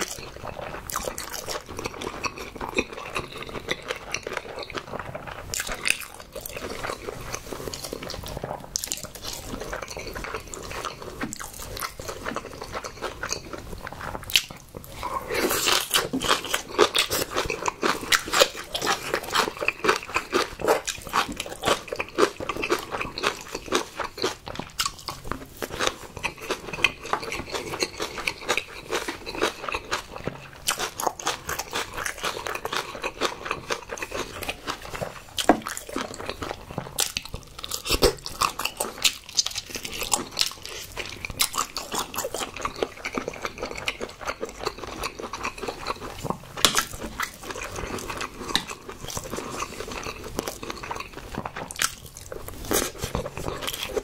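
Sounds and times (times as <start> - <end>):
chewing crunches: 0.0 - 54.0
wet mouth sounds: 0.0 - 54.0.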